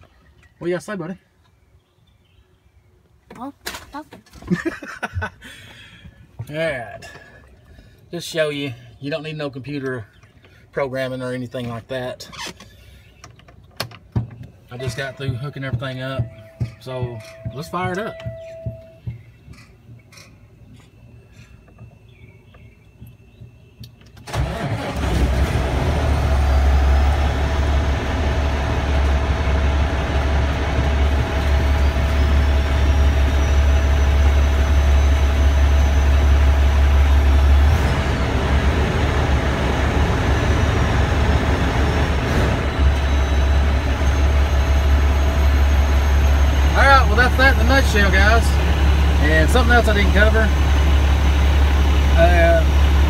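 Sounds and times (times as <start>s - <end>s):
diesel engine starting and idling: 24.1s - 53.0s.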